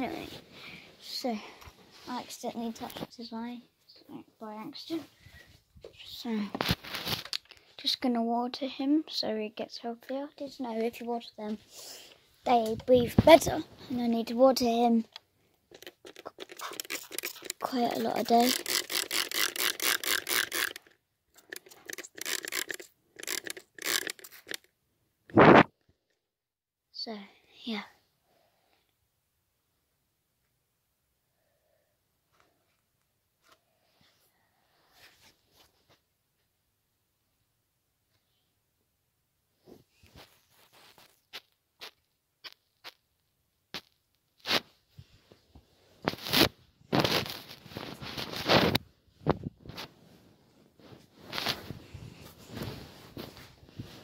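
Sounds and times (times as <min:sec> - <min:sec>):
spray bottle squirting: 0:15.7 - 0:24.6
phone scraping rustles: 0:46.0 - 0:48.8.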